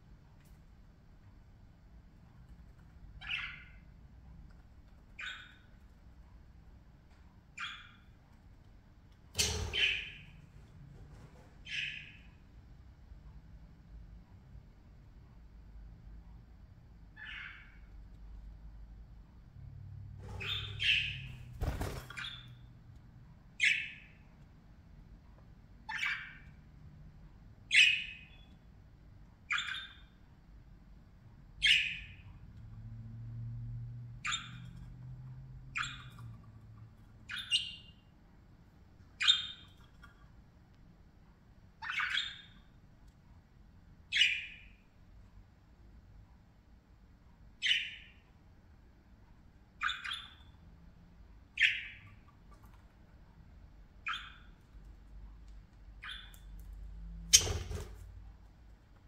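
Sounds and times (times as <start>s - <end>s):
budgerigars chirping: 3.2s - 3.9s, 5.2s - 5.7s, 7.5s - 8.1s, 9.4s - 10.4s, 11.6s - 12.3s, 17.1s - 17.9s, 20.4s - 22.6s, 23.6s - 24.2s, 25.8s - 26.6s, 27.7s - 28.4s, 29.5s - 30.1s, 31.6s - 32.3s, 34.2s - 34.8s, 35.7s - 36.5s, 37.2s - 38.0s, 39.2s - 39.8s, 41.8s - 42.7s, 44.1s - 44.8s, 47.6s - 48.3s, 49.8s - 50.6s, 51.5s - 52.4s, 54.0s - 54.6s, 56.0s - 56.4s.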